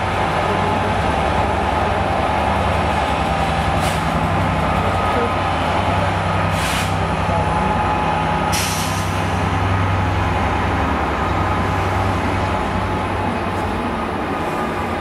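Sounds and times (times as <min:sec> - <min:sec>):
diesel train engine humming: 0:00.0 - 0:15.0
air hiss: 0:08.5 - 0:09.2.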